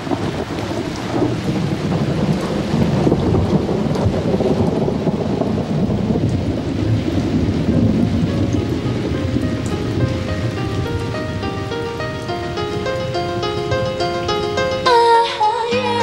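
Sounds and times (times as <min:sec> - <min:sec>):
fireworks rumbling bursts: 0:00.0 - 0:11.8.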